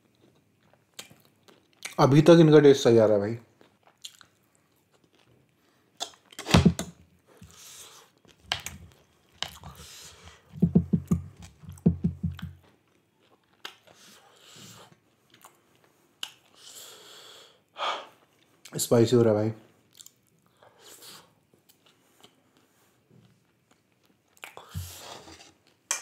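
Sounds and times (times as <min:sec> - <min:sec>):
close chewing and biting: 0:03.6 - 0:06.4, 0:11.1 - 0:16.6
loud knock: 0:06.5 - 0:06.9
wet mouth clicks and smacks: 0:16.2 - 0:16.6.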